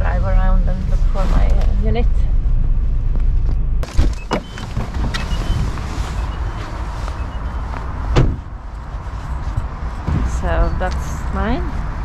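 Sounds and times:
car cabin rumble: 0.0s - 12.0s
sharp thump: 8.1s - 8.5s.

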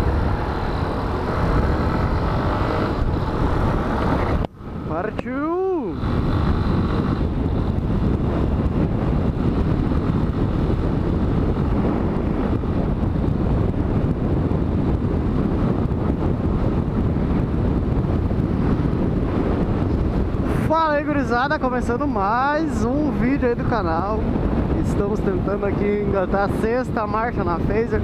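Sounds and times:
motorcycle engine running: 0.0s - 20.7s
wind noise on microphone: 0.0s - 28.0s.

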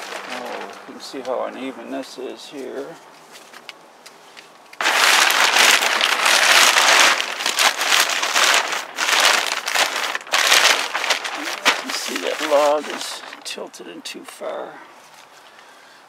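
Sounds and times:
plastic sheeting rustling: 0.0s - 3.0s, 4.8s - 13.8s.

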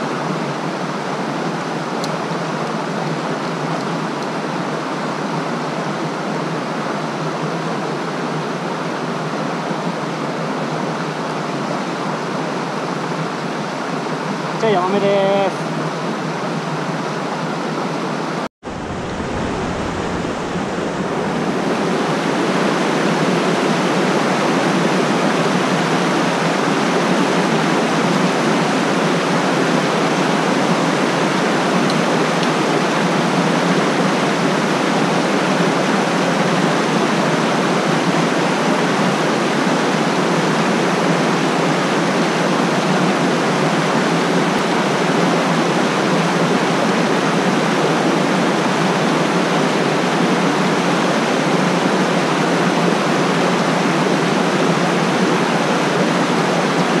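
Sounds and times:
whitewater rushing over rocks: 18.7s - 57.0s.

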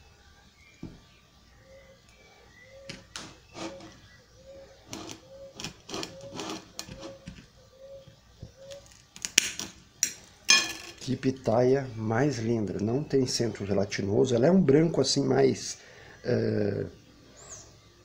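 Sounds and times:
knife scraping on glass plate: 3.5s - 4.0s, 4.9s - 7.2s.

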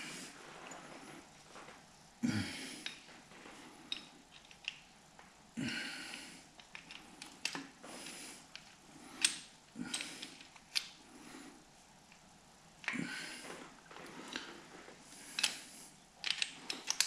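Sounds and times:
man breathing heavily: 0.0s - 1.3s, 2.2s - 4.2s, 5.6s - 11.7s, 12.9s - 16.0s.

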